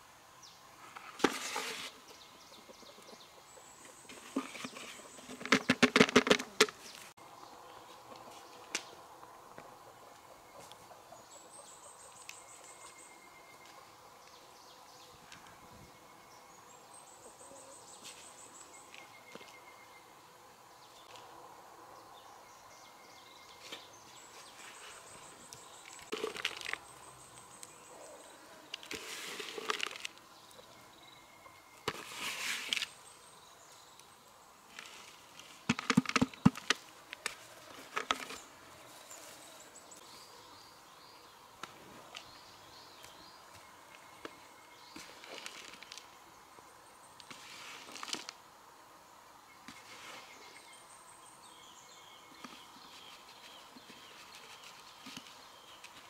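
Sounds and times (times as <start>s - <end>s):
rustling scrapes of soil: 0.8s - 2.2s, 3.8s - 7.2s, 17.6s - 19.6s, 23.5s - 30.6s, 31.8s - 33.1s, 34.7s - 40.0s, 43.5s - 46.2s, 47.2s - 48.4s, 49.7s - 50.7s, 52.4s - 56.0s.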